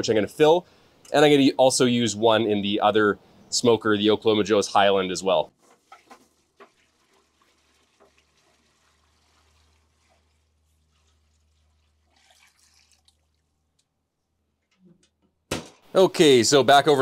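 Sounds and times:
water poured into foil pan: 5.6 - 13.8.

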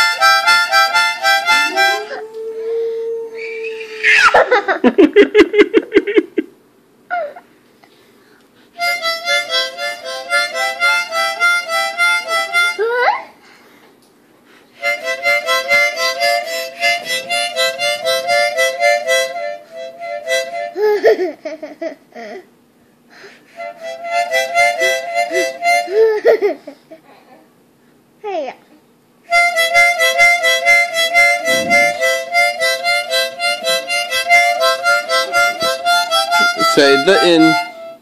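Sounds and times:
harmonica playing: 0.0 - 4.4, 8.8 - 13.1, 14.7 - 21.4, 23.4 - 26.6, 29.3 - 38.0.

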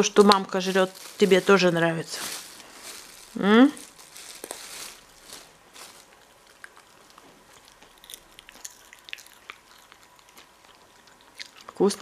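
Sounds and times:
dog chewing beans: 6.0 - 12.0.

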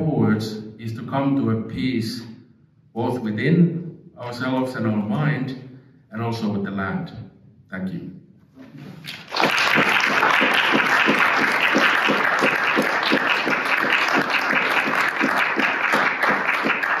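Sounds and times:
audience applauding: 9.0 - 17.0
single person clapping: 9.1 - 17.0.

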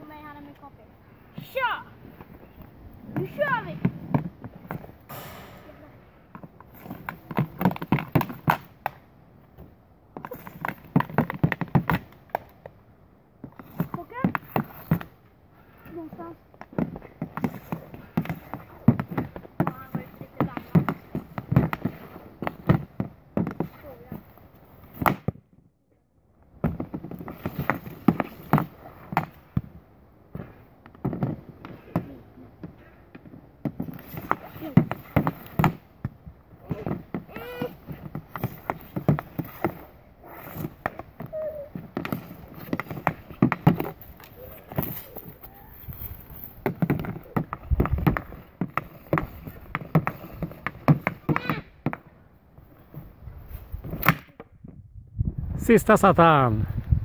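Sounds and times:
hockey stick and puck clacks: 6.3 - 9.0, 16.6 - 23.8, 26.6 - 29.7, 30.3 - 35.8, 36.6 - 45.1, 46.5 - 52.0
hockey stick tapping a ball: 46.6 - 52.1.

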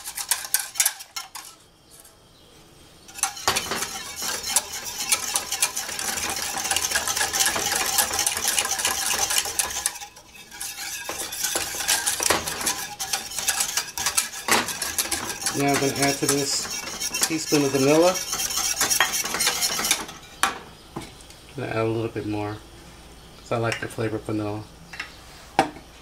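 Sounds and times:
whisk scraping metal pot: 0.0 - 1.6, 3.1 - 20.4.

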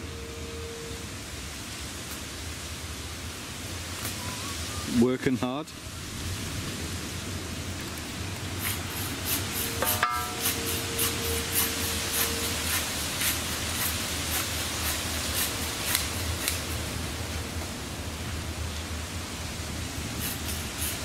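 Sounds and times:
faint tone: 0.0 - 1.1
steady hiss: 0.0 - 21.0
saw strokes cutting firewood: 8.6 - 16.9, 20.2 - 21.0.

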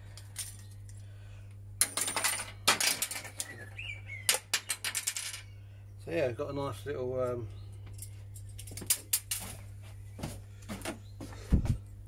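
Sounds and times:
small parts clicking and rattling: 1.8 - 3.6, 4.3 - 5.5.

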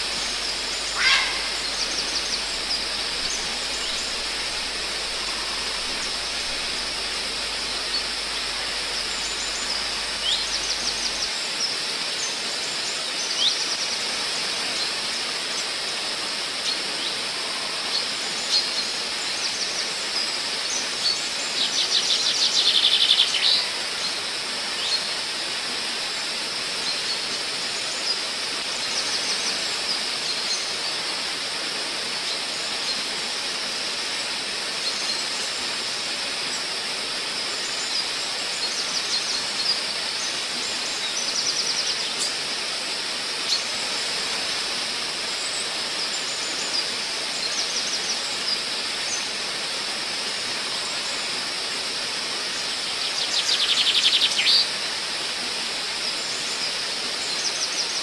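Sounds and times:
songbirds chirping: 0.0 - 14.1
waterfall rushing: 0.0 - 58.0
fast bird trill: 0.9 - 2.0.

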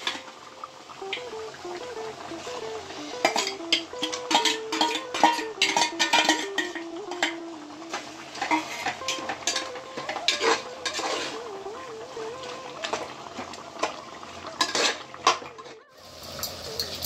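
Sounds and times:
food sizzling: 0.0 - 17.0
metal spoon scraping pot: 3.2 - 7.4, 8.4 - 11.4, 14.6 - 15.7.

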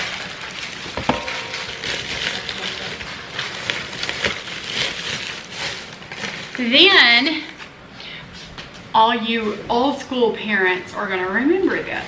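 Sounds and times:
plastic mailer bag crinkling: 0.0 - 7.0.

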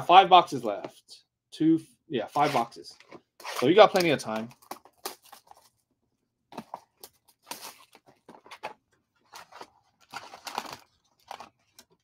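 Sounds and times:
plastic shrink wrap crinkling: 7.0 - 12.0.

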